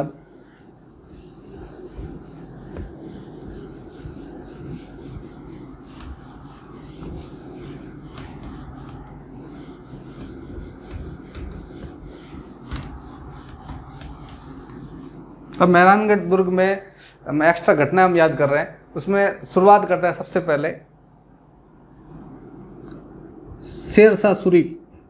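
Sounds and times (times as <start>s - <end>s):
eraser rubbing on whiteboard: 0.0s - 15.7s.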